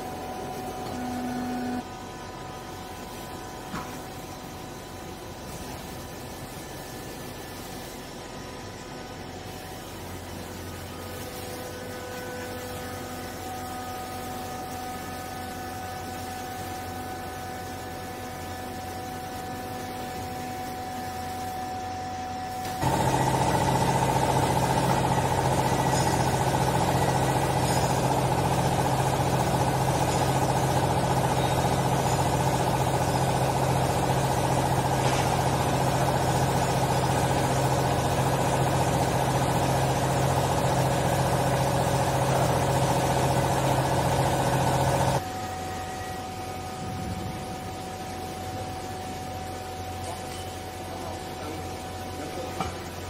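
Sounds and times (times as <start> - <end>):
hydraulic pump motor humming: 0.0 - 2.2, 21.6 - 45.3.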